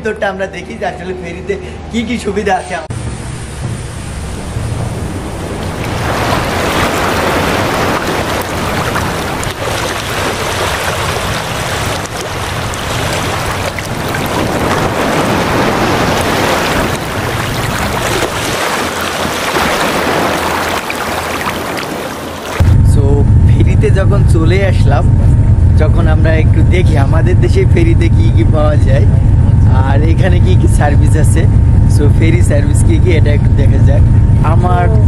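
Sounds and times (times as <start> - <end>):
low engine drone: 1.2 - 35.0
boat wake rushing along hull: 2.9 - 23.0
wind on microphone: 2.9 - 35.0.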